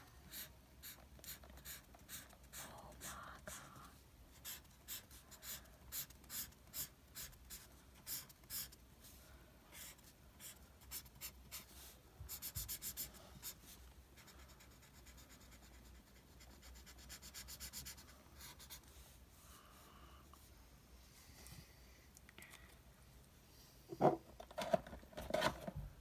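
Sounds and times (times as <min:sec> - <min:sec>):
marker scratching on paper: 0:00.3 - 0:08.8, 0:09.7 - 0:13.6, 0:14.2 - 0:18.9.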